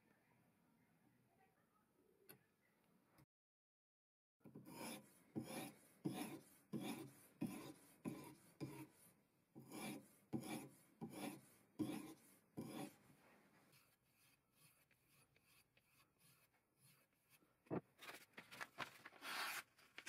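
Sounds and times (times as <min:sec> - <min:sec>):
sharpening stone rasping on knife: 0:04.6 - 0:08.9, 0:09.6 - 0:13.0, 0:13.7 - 0:17.4.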